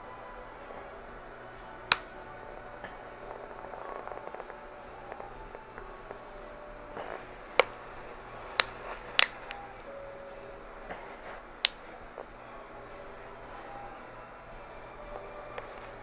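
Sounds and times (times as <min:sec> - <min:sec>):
sharp clicks: 0:08.5 - 0:09.7.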